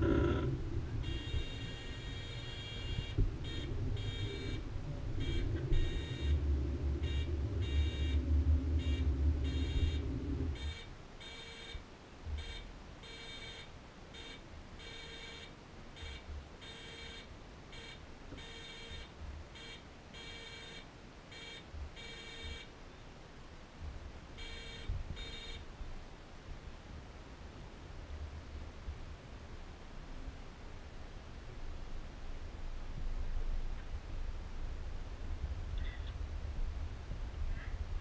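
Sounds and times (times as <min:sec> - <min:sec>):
low machinery hum: 0:00.0 - 0:11.2
electronic warning beeper: 0:00.0 - 0:11.8, 0:24.4 - 0:25.6.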